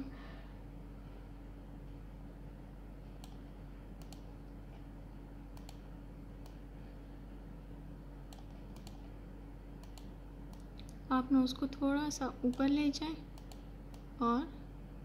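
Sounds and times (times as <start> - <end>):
low electrical hum: 0.0 - 15.0
computer mouse button clicking: 5.6 - 5.8, 8.3 - 9.0, 9.8 - 10.7.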